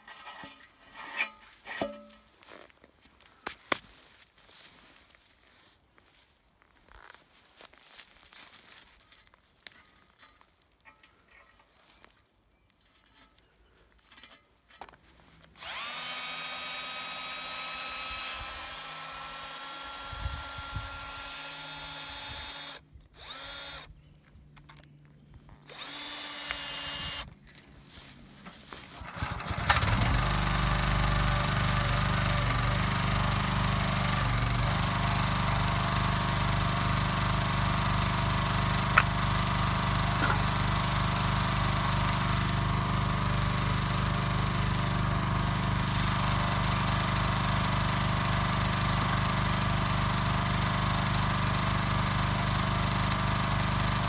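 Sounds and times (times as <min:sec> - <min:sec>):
power drill whining: 0:15.5 - 0:23.9, 0:25.6 - 0:27.3, 0:29.0 - 0:54.0
small engine running: 0:15.6 - 0:23.9, 0:25.6 - 0:27.3, 0:29.0 - 0:54.0.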